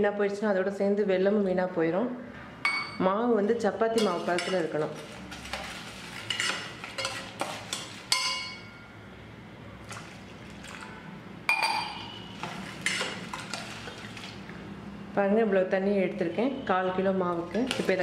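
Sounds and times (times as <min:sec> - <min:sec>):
water sloshing in a pot: 0:03.8 - 0:08.8, 0:09.7 - 0:14.8, 0:17.4 - 0:18.0
spoon scraping and clinking on pot: 0:03.9 - 0:08.8, 0:11.5 - 0:13.6.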